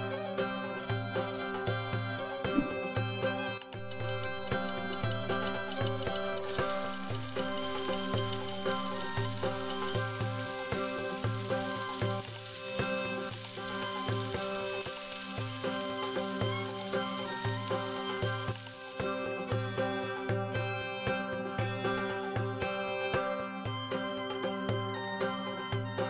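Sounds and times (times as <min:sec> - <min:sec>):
background music with steady beat: 0:00.0 - 0:26.0
hot oil sizzling: 0:03.8 - 0:20.2.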